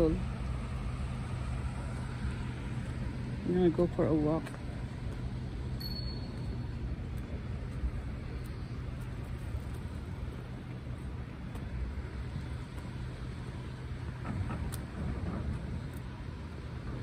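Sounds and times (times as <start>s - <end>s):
low outdoor rumble: 0.0s - 17.0s.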